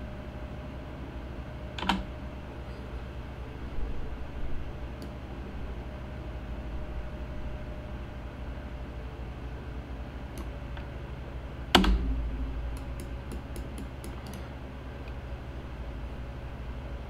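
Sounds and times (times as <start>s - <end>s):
steady low hum: 0.0s - 17.0s
light computer clicks: 12.7s - 14.5s.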